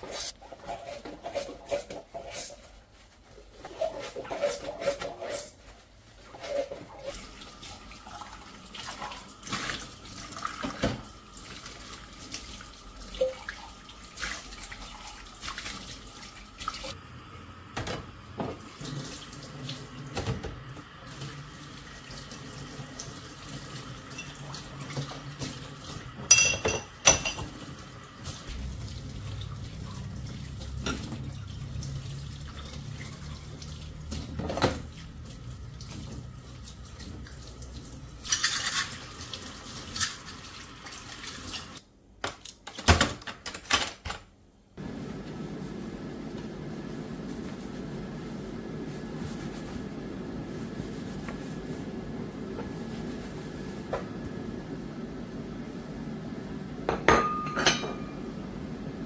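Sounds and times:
tap water running and splashing: 0:06.3 - 0:41.8
glasses clinking together: 0:26.3 - 0:27.4, 0:57.0 - 0:58.2.

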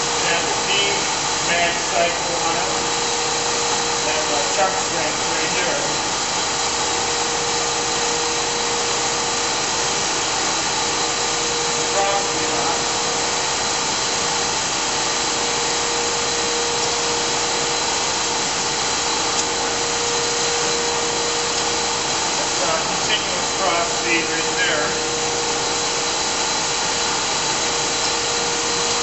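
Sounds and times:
steady machine tone: 0:00.0 - 0:29.0
surface grinder machine noise: 0:00.0 - 0:29.0.

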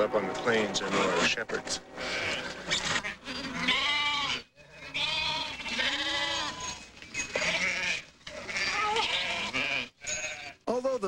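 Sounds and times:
sheep bleating: 0:00.1 - 0:10.7.

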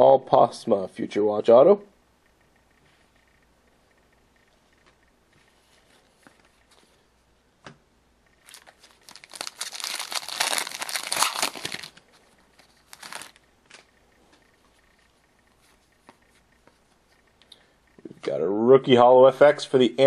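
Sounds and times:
wrapper crinkling and tearing: 0:08.4 - 0:12.0, 0:12.6 - 0:13.8.

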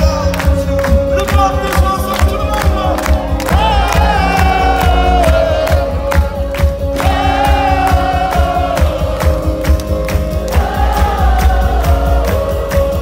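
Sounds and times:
heavy bass: 0:00.0 - 0:13.0
live rock band playing: 0:00.0 - 0:13.0
steady drumbeat: 0:00.0 - 0:13.0
voices singing long notes: 0:03.2 - 0:13.0.

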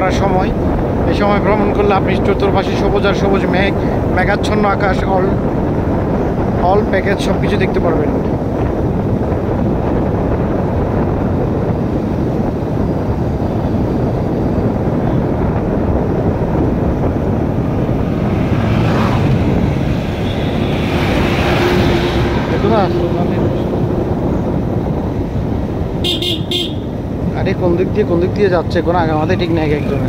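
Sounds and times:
wind and road noise: 0:00.0 - 0:30.0
passing motorbike and truck: 0:08.4 - 0:27.3, 0:29.0 - 0:30.0.

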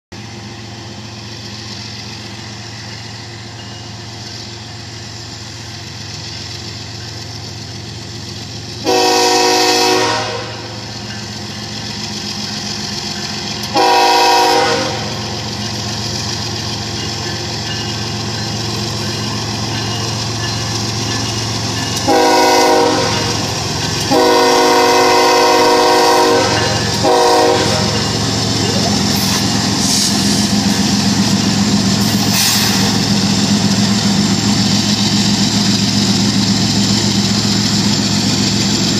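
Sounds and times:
diesel locomotive engine running: 0:00.1 - 0:38.9
locomotive air horn: 0:08.8 - 0:10.8, 0:13.7 - 0:15.2, 0:22.0 - 0:23.5, 0:24.1 - 0:28.1.

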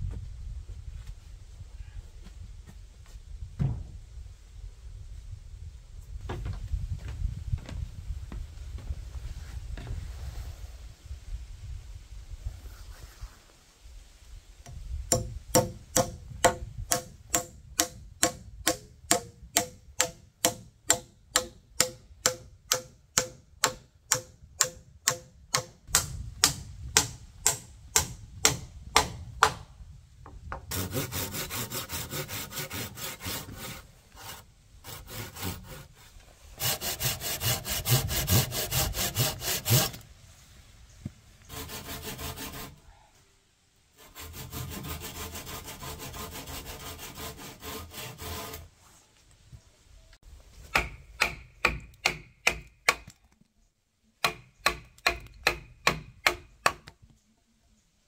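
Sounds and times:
hand saw cutting wood: 0:15.1 - 0:25.7, 0:30.7 - 0:40.0, 0:41.5 - 0:42.8, 0:44.0 - 0:48.7.

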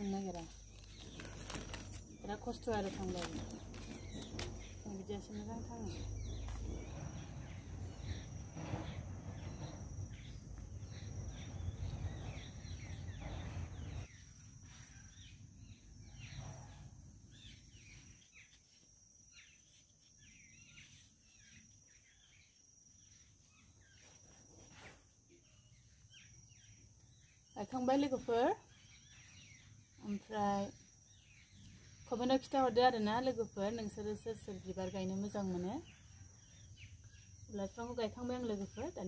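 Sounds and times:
birds chirping: 0:00.0 - 0:18.8
insects chirping trill: 0:00.0 - 0:39.0.

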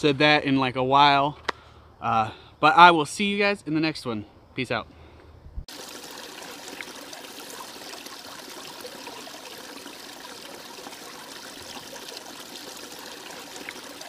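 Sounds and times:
stream babbling over stones: 0:05.7 - 0:14.0.

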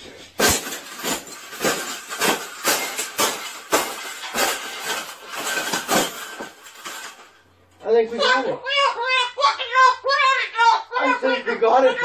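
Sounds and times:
wire cage crunching under boots: 0:00.3 - 0:07.5.

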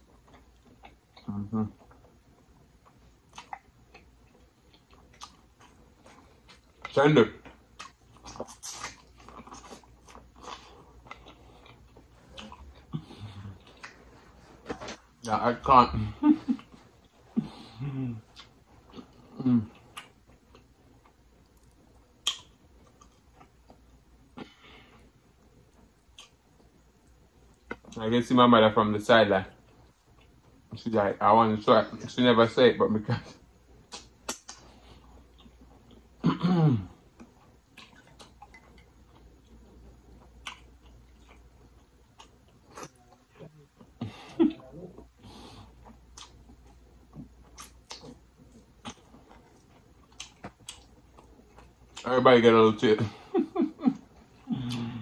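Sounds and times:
wet clicks and smacks of eating: 0:00.2 - 0:12.9, 0:18.3 - 0:19.2, 0:19.8 - 0:23.8, 0:25.8 - 0:28.0, 0:33.8 - 0:36.0, 0:37.1 - 0:39.6, 0:40.2 - 0:43.0, 0:45.8 - 0:52.1.

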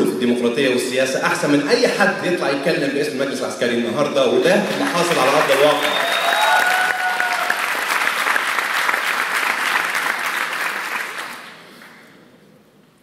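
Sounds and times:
audience applauding: 0:04.5 - 0:12.3.

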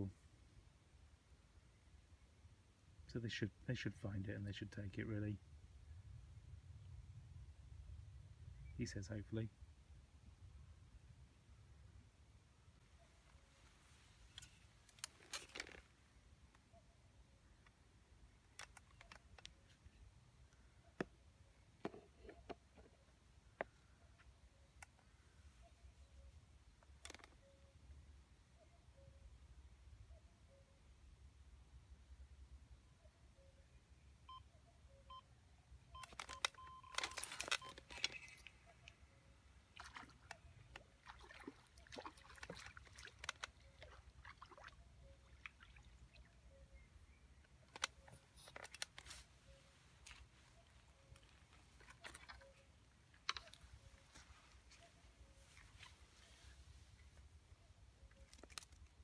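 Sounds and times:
light water splashing: 0:39.6 - 0:46.4, 0:50.0 - 0:53.8.

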